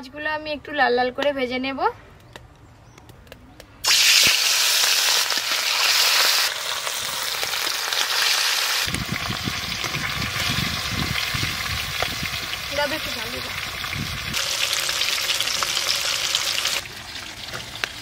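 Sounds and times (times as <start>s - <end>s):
fish sizzling in hot oil: 3.8s - 18.0s
oil spitting and crackling: 3.8s - 18.0s.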